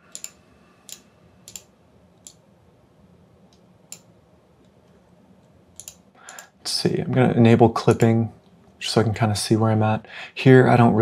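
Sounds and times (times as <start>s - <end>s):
low room hum: 0.0s - 11.0s
computer mouse clicks: 0.1s - 2.4s, 5.7s - 6.5s.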